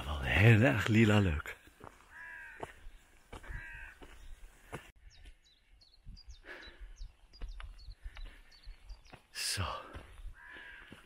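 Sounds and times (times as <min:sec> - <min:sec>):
songbird chirping: 0:00.0 - 0:11.0
crow cawing: 0:02.0 - 0:04.2, 0:10.3 - 0:11.0.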